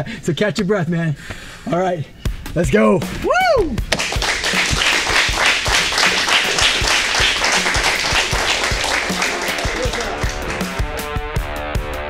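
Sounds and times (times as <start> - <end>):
music with low beat: 2.2 - 12.0
people clapping: 3.9 - 11.1.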